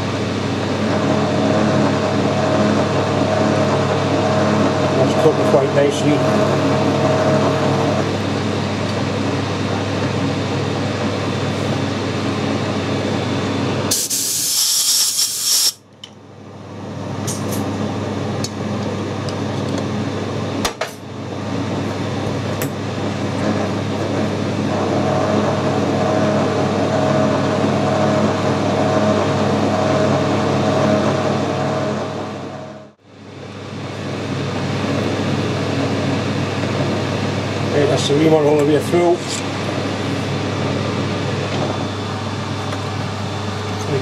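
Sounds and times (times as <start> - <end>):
metal lathe humming: 0.0 - 13.2, 23.0 - 32.9.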